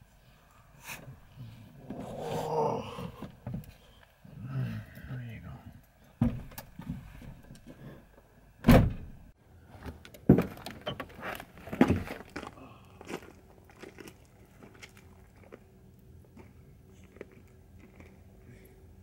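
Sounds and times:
heavy thumps and knocks: 6.2s - 7.4s
footsteps on gravel: 10.5s - 15.7s, 16.3s - 18.2s.

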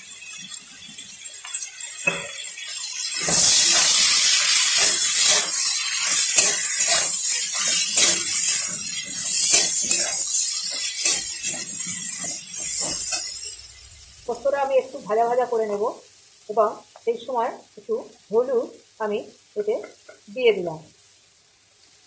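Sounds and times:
food sizzling in oil: 0.0s - 22.0s
metal spatula scraping pan: 0.2s - 14.1s.

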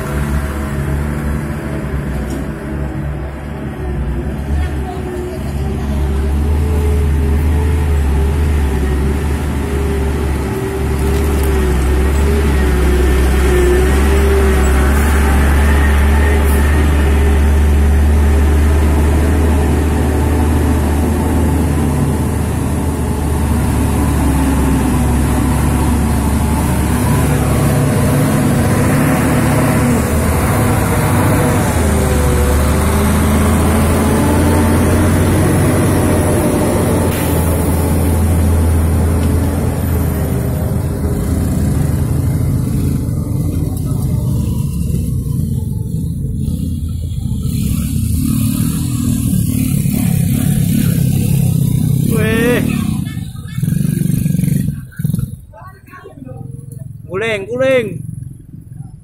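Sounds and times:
truck diesel engine under load: 0.0s - 59.0s.

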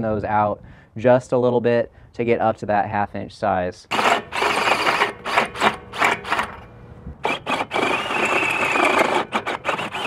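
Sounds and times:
drill cutting metal: 3.9s - 6.6s, 7.2s - 10.0s
drill whining: 3.9s - 10.0s.

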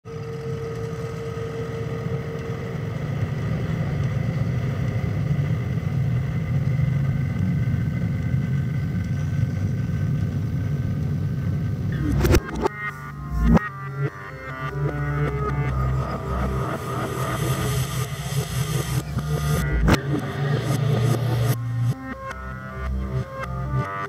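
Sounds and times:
low rumble: 11.7s - 22.3s
sharp hit: 11.9s - 13.7s
music: 11.9s - 24.0s.

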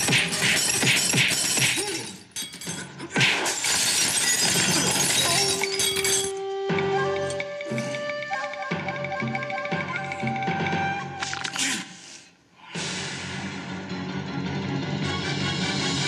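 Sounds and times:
music: 0.0s - 1.8s, 4.7s - 11.6s, 12.6s - 16.0s
glass shattering: 0.0s - 6.4s.

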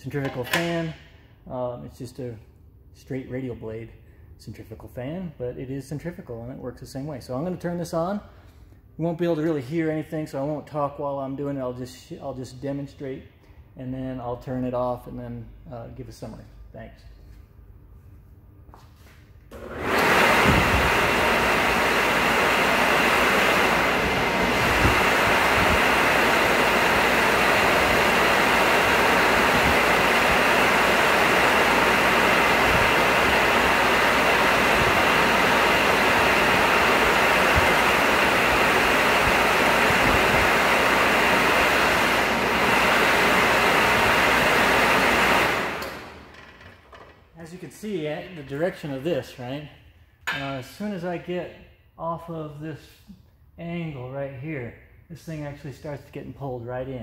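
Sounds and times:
cooling fan rushing air: 19.4s - 51.6s.

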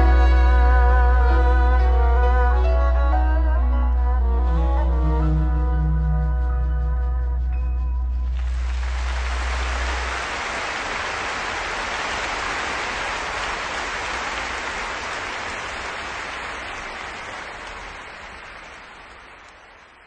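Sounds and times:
audience applauding: 8.4s - 20.0s.

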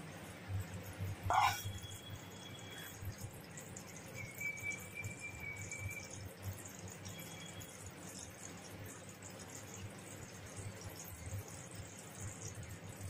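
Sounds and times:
syrup bubbling in a pan: 0.0s - 13.0s
water swirling in a bowl: 0.0s - 13.0s.

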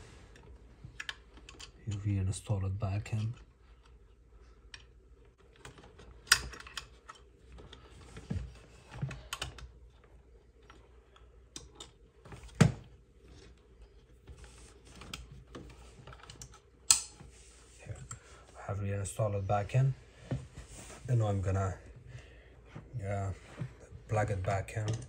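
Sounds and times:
sharp plastic snaps: 16.3s - 17.2s.

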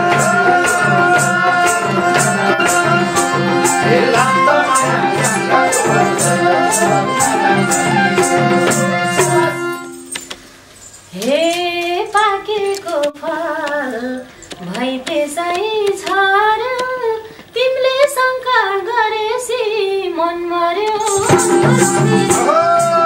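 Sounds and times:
instrumental accompaniment: 0.0s - 12.8s, 20.8s - 23.0s
woman singing folk verse: 11.1s - 23.0s.

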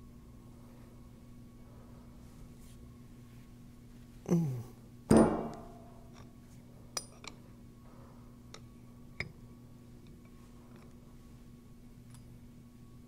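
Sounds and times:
faint steady hum: 0.0s - 13.0s
metal clank ringing: 5.1s - 6.0s.

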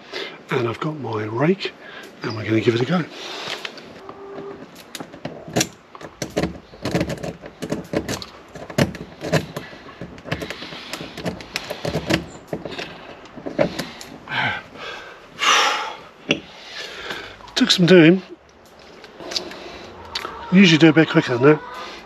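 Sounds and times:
lock pick clicking and scraping: 4.5s - 14.2s
padlock rattling: 4.7s - 14.2s.

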